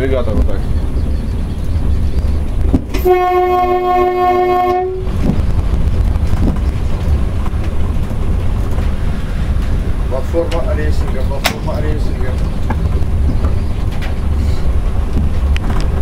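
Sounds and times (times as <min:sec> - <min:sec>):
train running rumble: 0:00.0 - 0:16.0
train horn blast: 0:02.9 - 0:05.2.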